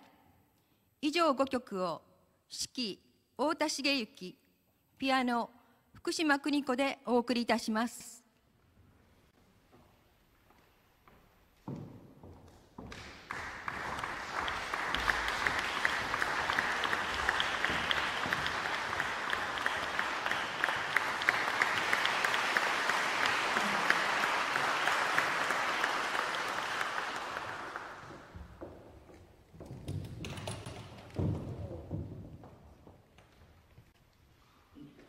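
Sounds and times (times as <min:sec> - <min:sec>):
audience applauding: 0:12.8 - 0:28.6.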